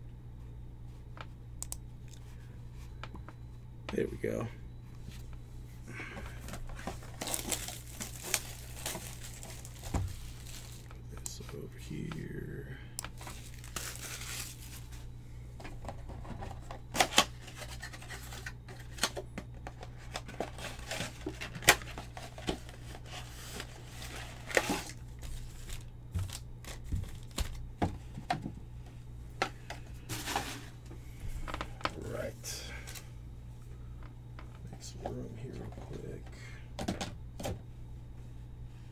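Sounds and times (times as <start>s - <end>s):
steady low hum: 0.0s - 38.9s
plastic wrapping crinkling: 6.6s - 11.0s, 13.1s - 15.1s, 20.1s - 27.7s
packaging tearing: 7.0s - 10.9s, 13.2s - 14.9s.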